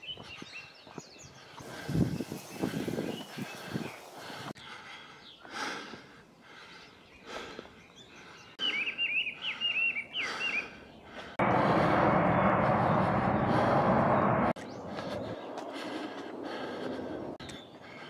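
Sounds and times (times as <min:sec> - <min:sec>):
songbird chirping: 0:00.0 - 0:11.4, 0:14.5 - 0:18.0
faint outdoor background noise: 0:00.0 - 0:11.9
loud rushing noise: 0:11.4 - 0:14.6.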